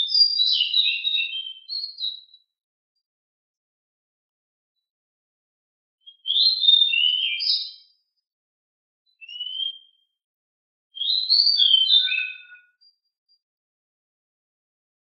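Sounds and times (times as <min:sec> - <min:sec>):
songbird whistling: 0:06.1 - 0:07.9, 0:09.2 - 0:10.0, 0:11.0 - 0:13.0.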